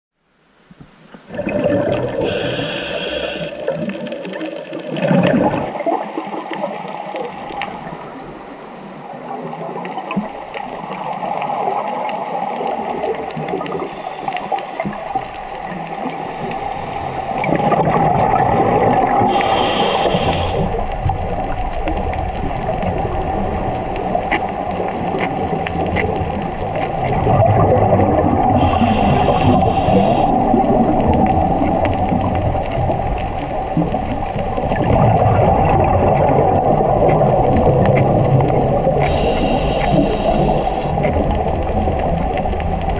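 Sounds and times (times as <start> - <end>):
underwater breathing bubbles gurgling: 1.1 - 42.9
regulator hiss: 2.1 - 3.9, 19.3 - 20.9, 28.6 - 30.6, 39.0 - 41.6.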